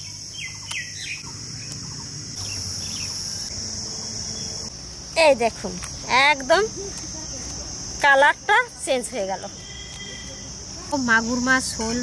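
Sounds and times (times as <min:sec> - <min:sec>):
bird chirps: 0:00.0 - 0:04.7
high-pitched drone of insects: 0:00.0 - 0:12.0.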